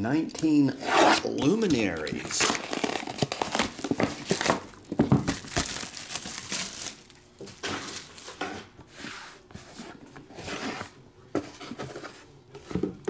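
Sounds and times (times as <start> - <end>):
plastic shrink wrap crinkling: 1.4 - 8.5.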